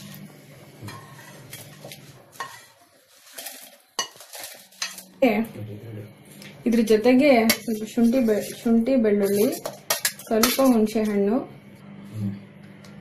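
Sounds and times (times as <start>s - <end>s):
spoon scraping and tapping pan: 0.9s - 2.8s, 3.4s - 5.1s, 7.4s - 8.6s, 9.2s - 11.2s.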